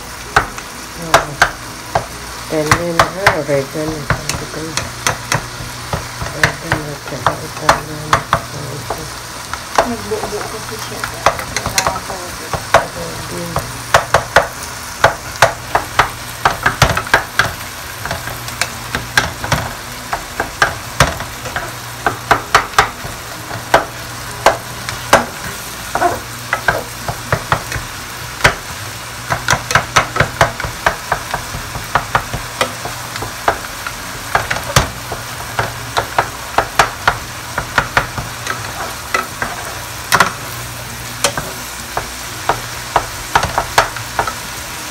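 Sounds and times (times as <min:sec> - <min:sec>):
meat sizzling in a pot: 0:00.0 - 0:44.9
wooden spoons scraping a pot: 0:38.2 - 0:40.4.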